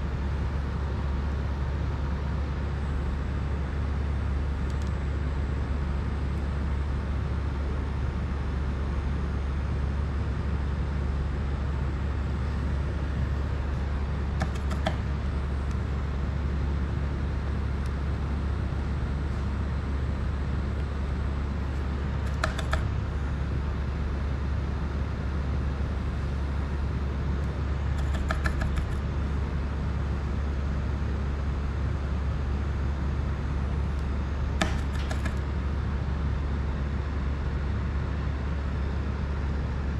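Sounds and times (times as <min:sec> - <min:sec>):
low droning hum: 0:00.0 - 0:39.9
small tools clicking: 0:22.3 - 0:22.9, 0:28.0 - 0:29.0.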